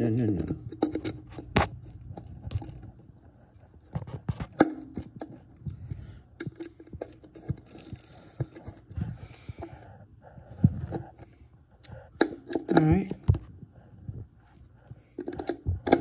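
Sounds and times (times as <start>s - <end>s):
metal and plastic parts knocking: 0.2s - 2.9s, 3.9s - 8.9s, 12.2s - 13.5s, 15.2s - 16.0s.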